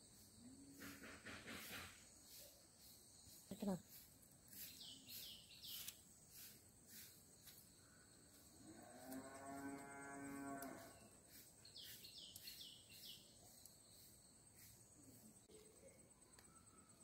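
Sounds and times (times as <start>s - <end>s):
cow mooing: 8.8s - 10.9s.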